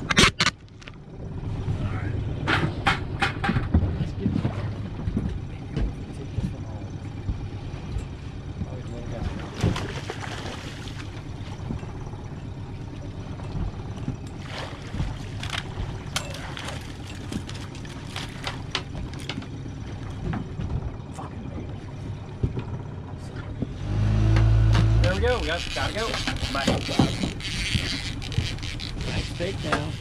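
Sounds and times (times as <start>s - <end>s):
loud low drone: 0.0s - 26.4s
boat engine running: 0.0s - 30.0s
water and hull noise: 0.0s - 30.0s.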